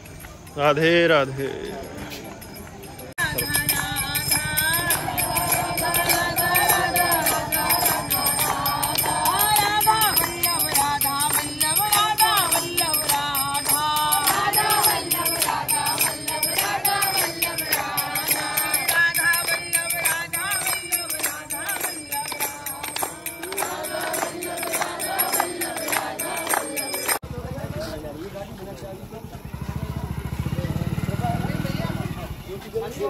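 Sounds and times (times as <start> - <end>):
jingling bells percussion: 0.0 - 27.3
devotional chant singing: 3.0 - 27.2.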